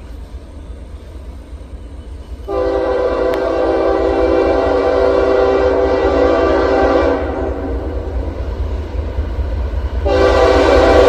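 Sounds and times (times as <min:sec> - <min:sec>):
locomotive air horn blasts: 0:02.5 - 0:08.0, 0:10.0 - 0:11.0.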